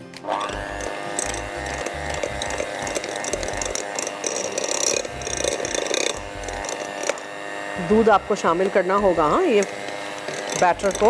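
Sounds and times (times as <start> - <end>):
electric hand mixer running: 0.0 - 11.0.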